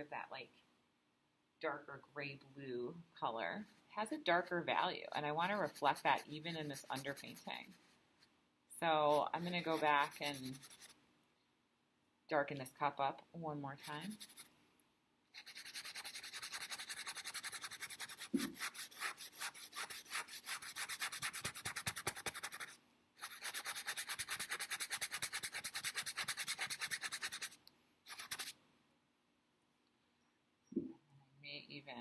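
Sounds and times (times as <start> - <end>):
paintbrush scrubbing canvas: 5.3 - 8.0, 9.1 - 11.0, 13.8 - 14.5, 15.4 - 28.6.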